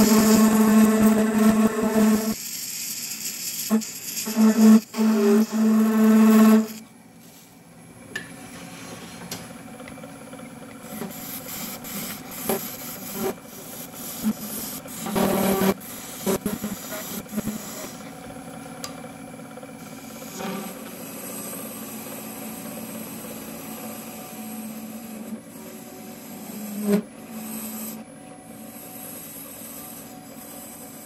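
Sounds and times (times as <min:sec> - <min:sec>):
lathe tool squealing on brass: 0:00.0 - 0:02.4, 0:03.7 - 0:06.8, 0:11.0 - 0:18.0.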